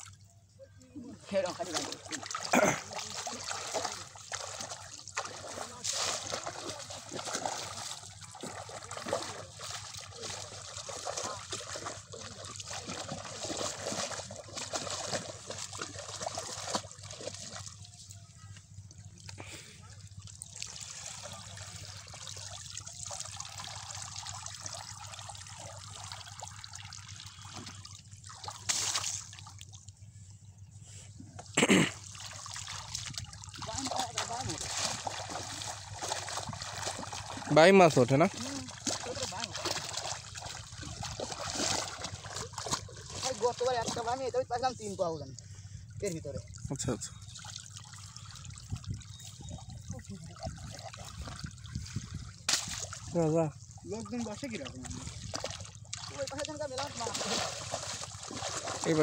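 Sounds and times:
shallow water splashing: 0.9 - 30.7, 31.4 - 59.0
water streaming off a net: 20.6 - 29.4, 32.1 - 43.4, 55.2 - 59.0.

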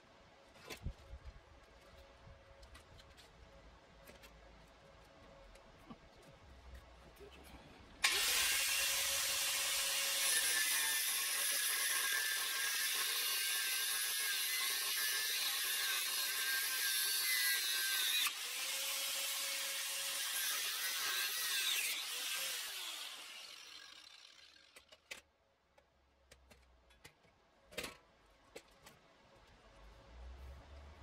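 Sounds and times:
angle grinder cutting steel: 8.0 - 24.9.

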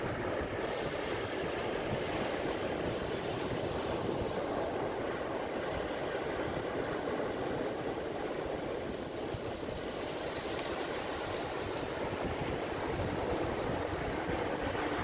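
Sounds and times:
surf breaking on beach: 0.0 - 15.0
wind rumbling on microphone: 0.0 - 15.0.

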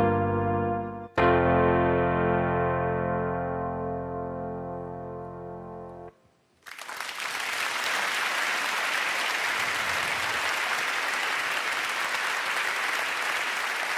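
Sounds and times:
audience applause: 6.6 - 13.9.

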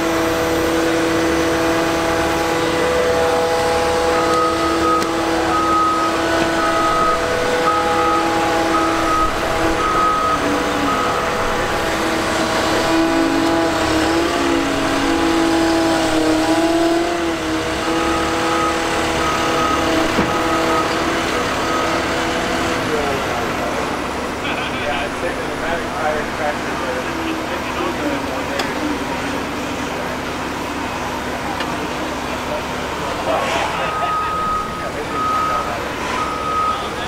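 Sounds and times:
diesel engine running: 0.0 - 37.0
backup alarm beeping: 4.0 - 12.0, 18.0 - 22.1, 33.8 - 37.0.

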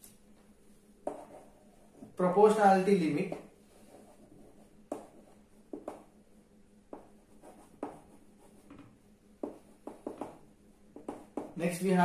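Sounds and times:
faint chalk scratching: 0.7 - 2.2, 3.1 - 6.2, 6.9 - 11.8.

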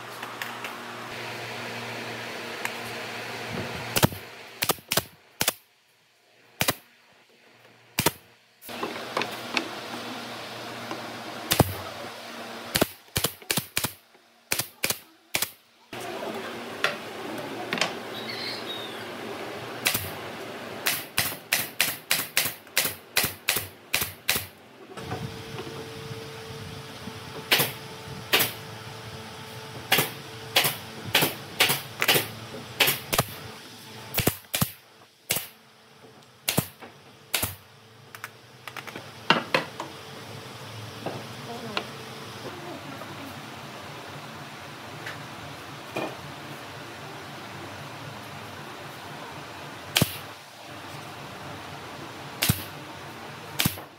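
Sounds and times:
nail gun firing into wood: 3.9 - 5.6, 6.6 - 6.8, 8.0 - 8.2, 11.5 - 11.8, 12.7 - 15.6, 19.8 - 20.1, 20.8 - 24.5, 27.5 - 28.6, 29.9 - 33.4, 34.1 - 35.6, 36.5 - 37.6, 49.9 - 50.3, 52.4 - 52.7, 53.6 - 53.9.

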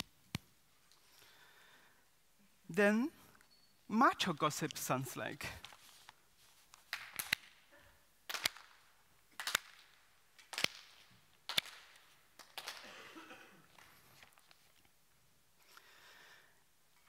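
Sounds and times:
hand claps: 6.8 - 7.6, 8.3 - 8.8, 9.4 - 13.0.

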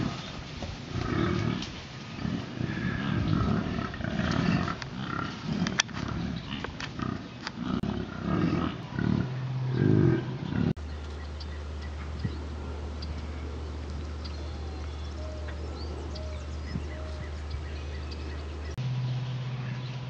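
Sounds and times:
steady low hum: 0.0 - 20.0
bison grunting: 0.9 - 10.8.

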